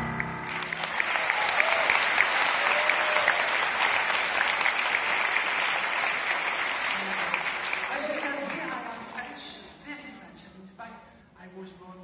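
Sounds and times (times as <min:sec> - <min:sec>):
piano and strings chord: 0:00.0 - 0:00.9
audience applauding: 0:00.1 - 0:09.3.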